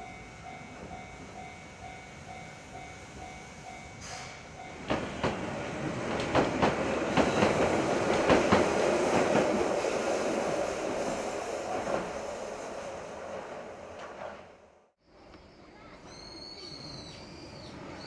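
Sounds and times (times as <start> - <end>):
tram rumble: 0.0 - 18.0
tram wheels clicking over rail joints: 4.8 - 12.6.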